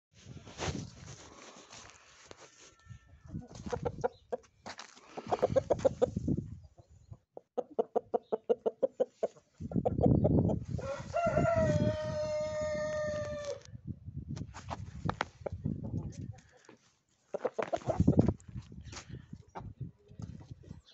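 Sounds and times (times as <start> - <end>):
rooster clucking: 3.3 - 4.5, 5.1 - 6.2, 7.4 - 13.6, 17.3 - 18.3
rooster crowing: 10.8 - 13.6.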